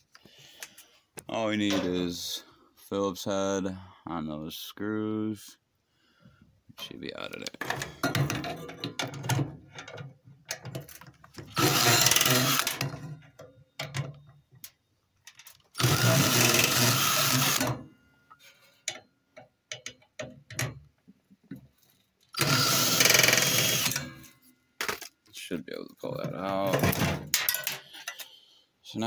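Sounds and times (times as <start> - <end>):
power drill backing out screws: 11.4 - 13.2, 15.7 - 17.9, 22.4 - 25.1.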